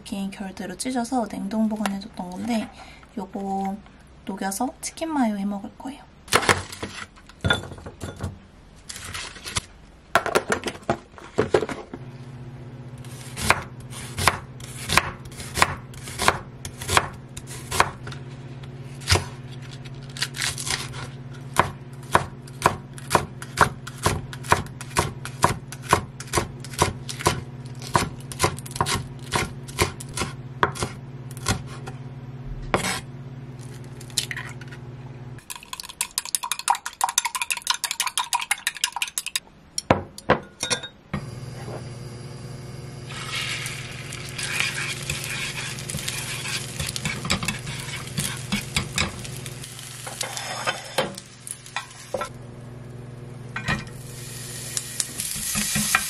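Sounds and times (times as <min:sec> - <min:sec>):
steady low hum: 0:11.8 - 0:35.5, 0:39.5 - 0:56.0
knife chopping on wooden board: 0:13.4 - 0:18.2, 0:20.4 - 0:32.0
egg beaten in glass cup: 0:35.4 - 0:39.4.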